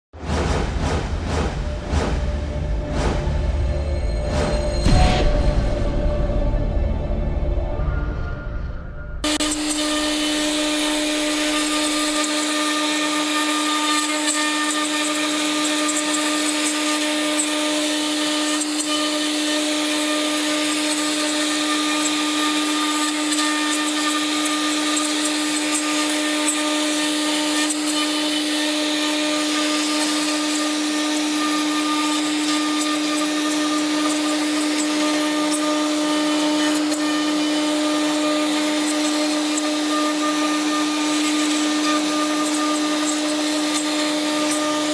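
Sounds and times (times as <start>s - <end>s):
wood router humming: 9.2s - 44.9s.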